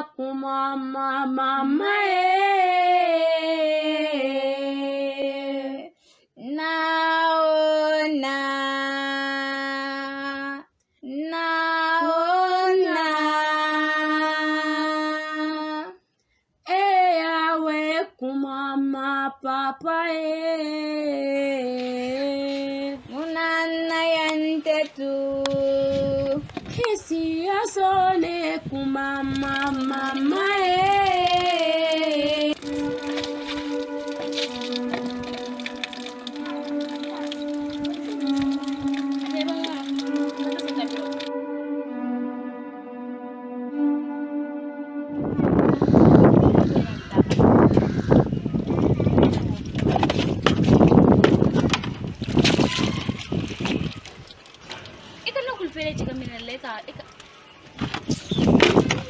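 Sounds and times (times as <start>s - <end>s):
woman singing unaccompanied: 0.0s - 16.0s, 16.6s - 33.9s, 34.8s - 41.3s.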